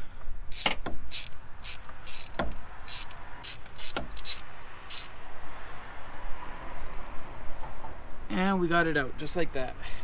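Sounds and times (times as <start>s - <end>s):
ratchet wrench clicking: 0.5s - 5.3s.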